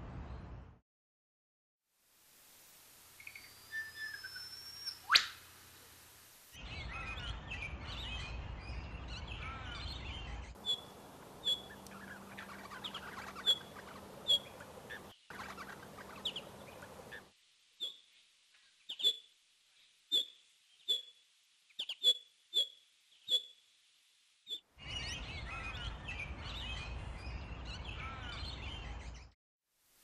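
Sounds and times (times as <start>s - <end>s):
short sharp bird calls: 3.2s - 5.5s, 10.6s - 17.2s, 20.1s - 21.1s
birds chattering calls: 9.3s - 18.0s.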